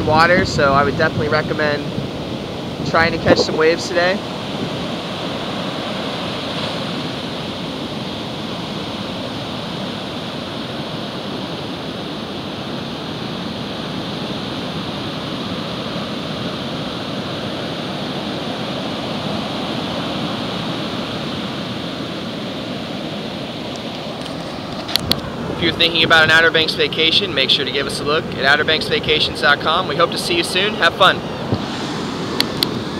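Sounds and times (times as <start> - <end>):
ocean waves breaking on sand: 0.0 - 32.9.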